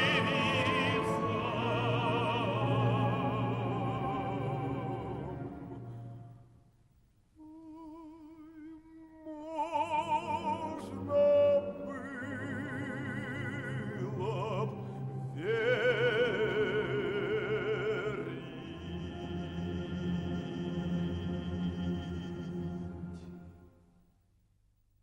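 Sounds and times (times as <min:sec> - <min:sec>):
operatic tenor singing: 0:00.0 - 0:06.3, 0:07.4 - 0:23.6
orchestra playing: 0:00.0 - 0:06.3.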